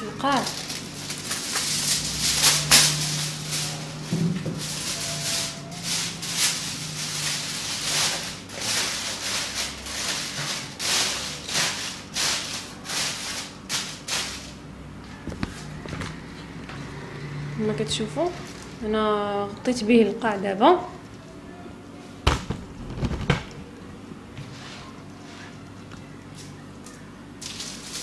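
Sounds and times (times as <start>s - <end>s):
foil crinkling: 0.3s - 14.6s, 26.4s - 28.0s.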